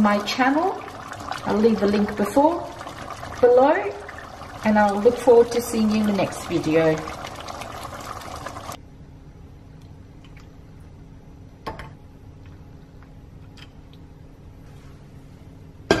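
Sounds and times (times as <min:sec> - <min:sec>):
gravy simmering in pot: 0:00.0 - 0:08.8
low steady hum: 0:00.0 - 0:16.0.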